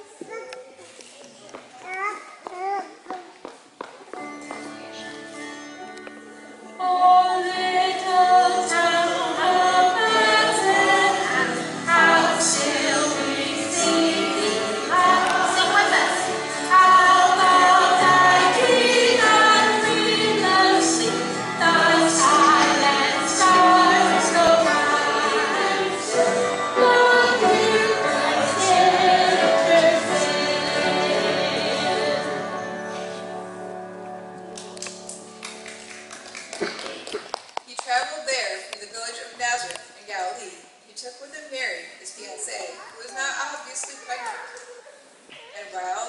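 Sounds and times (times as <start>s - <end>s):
piano: 4.1s - 37.3s
guitar: 4.1s - 37.4s
woman singing: 6.8s - 30.3s.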